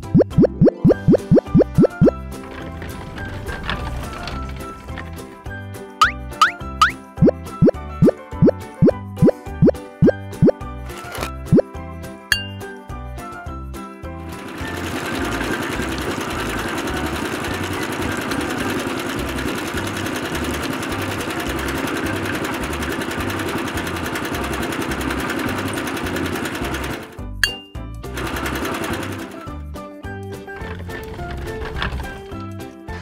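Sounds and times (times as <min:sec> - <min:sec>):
background music with low beat: 0:00.0 - 0:02.2.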